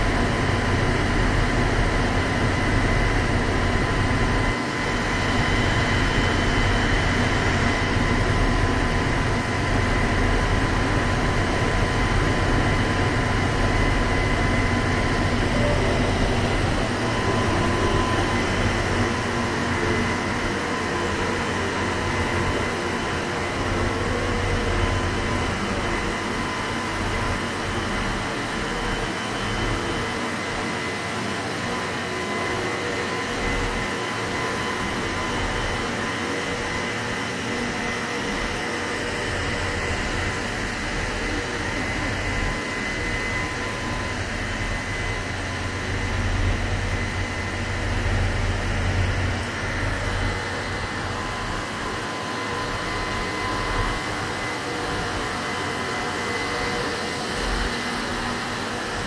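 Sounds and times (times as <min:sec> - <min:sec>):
thin steady whine: 0:00.0 - 0:59.0
trains humming and rumbling: 0:10.6 - 0:26.1.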